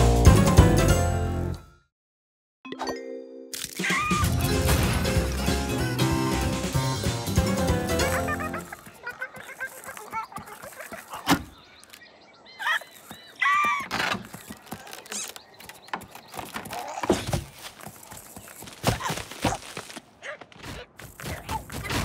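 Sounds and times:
quick footfalls: 0:08.6 - 0:22.0.

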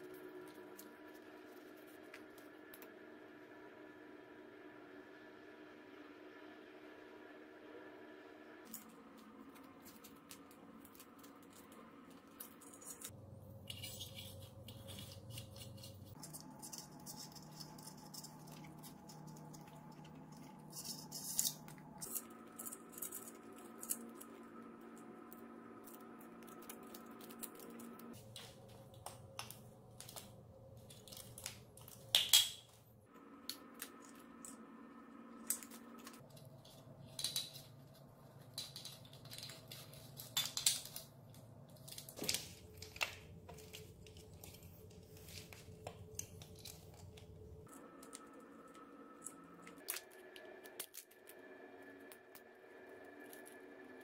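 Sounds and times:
small metal parts clicking and rattling: 0:09.8 - 0:24.3.

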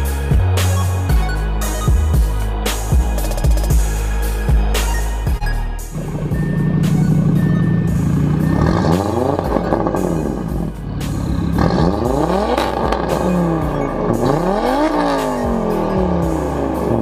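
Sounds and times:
turbocharged car engine revving: 0:05.9 - 0:17.0.

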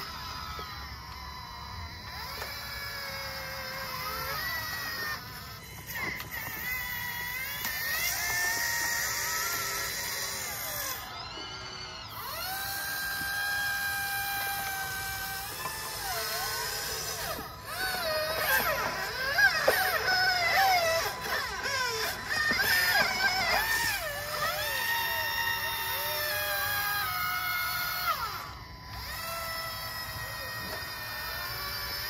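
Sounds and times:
excavator pump motor whining: 0:00.0 - 0:32.0.

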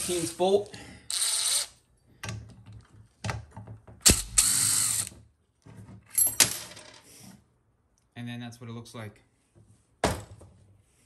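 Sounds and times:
ratchet wrench clicking: 0:04.0 - 0:05.1.

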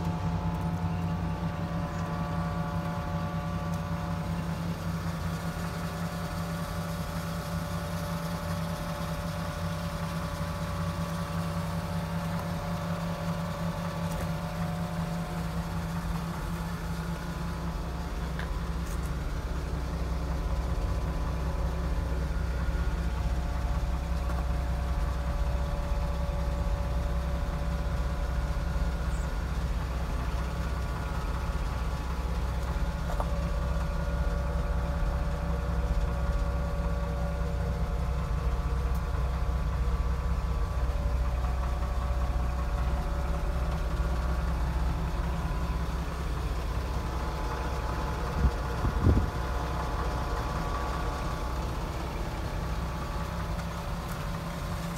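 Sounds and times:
truck engine idling: 0:00.0 - 0:54.9.

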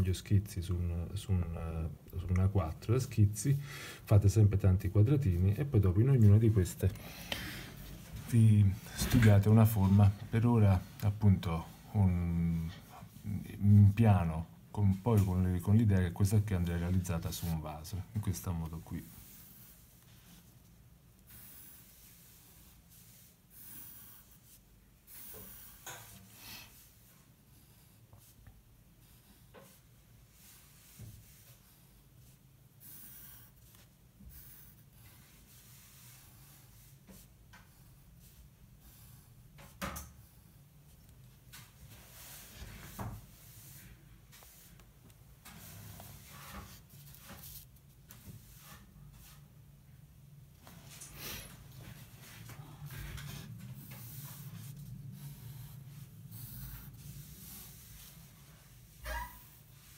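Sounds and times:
pencil scratching on paper: 0:18.7 - 0:40.6, 0:53.0 - 0:59.9
low steady hum: 0:26.7 - 0:59.9.

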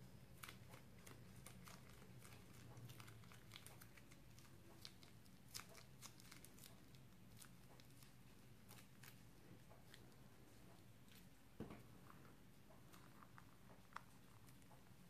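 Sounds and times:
low steady hum: 0:00.0 - 0:15.0
slime squishing: 0:00.0 - 0:15.0
plastic bag crinkling: 0:00.3 - 0:09.2.

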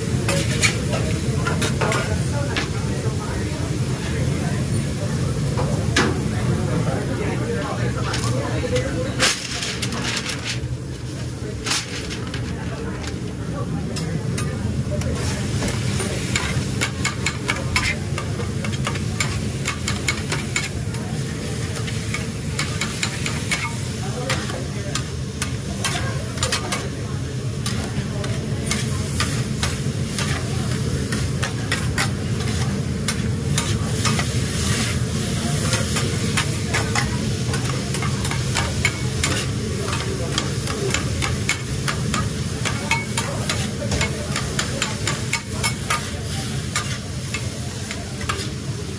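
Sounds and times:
meat and vegetables sizzling: 0:00.0 - 0:06.4, 0:14.2 - 0:48.9
metal spatulas scraping griddle: 0:00.3 - 0:02.1, 0:27.6 - 0:46.1, 0:46.7 - 0:47.5.

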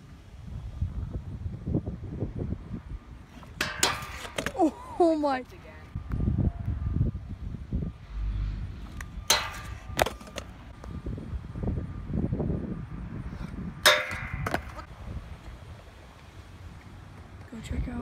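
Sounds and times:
scooter clanging on metal rail: 0:03.5 - 0:04.7, 0:09.3 - 0:10.5, 0:13.8 - 0:14.9
low rumble: 0:05.9 - 0:10.0.

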